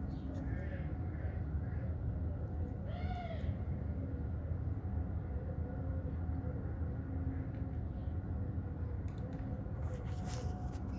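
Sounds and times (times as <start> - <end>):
faint hum: 0.0 - 10.9.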